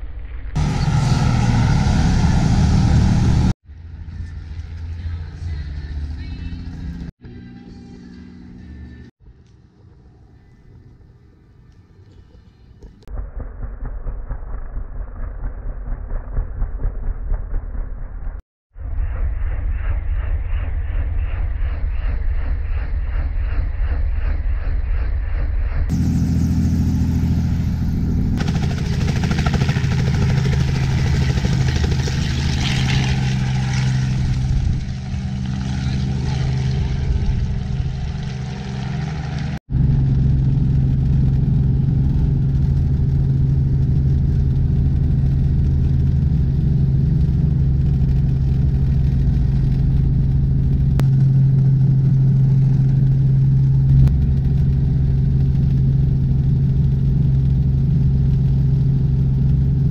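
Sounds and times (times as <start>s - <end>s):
rushing noise: 0.6s - 3.6s
helicopter engine and rotor hum: 25.9s - 59.8s.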